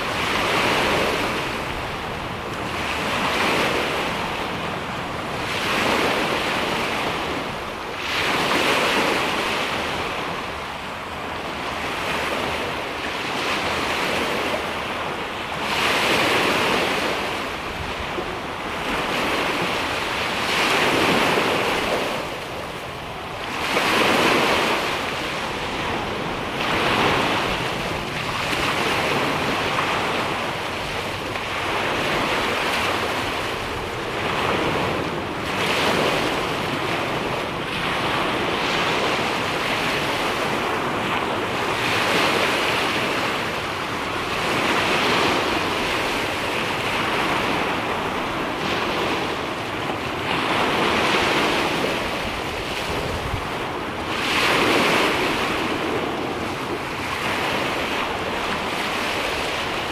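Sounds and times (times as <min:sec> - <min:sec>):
waves washing on pebble beach: 0:23.3 - 0:59.9.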